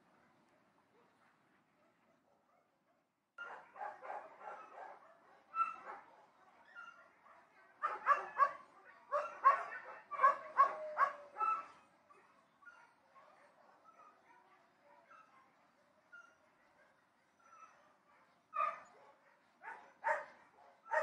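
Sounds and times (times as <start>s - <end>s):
dogs barking: 3.4s - 6.1s, 6.8s - 11.8s, 18.6s - 21.0s.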